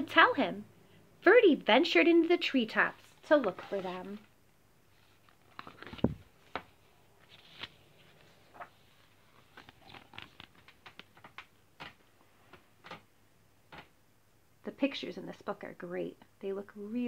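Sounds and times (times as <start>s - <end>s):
pages rustling: 2.2s - 13.1s.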